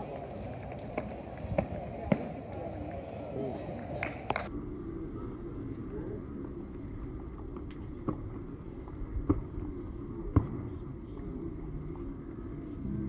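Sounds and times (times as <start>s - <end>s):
low stadium hum: 0.0s - 13.0s
hand claps: 4.0s - 4.5s.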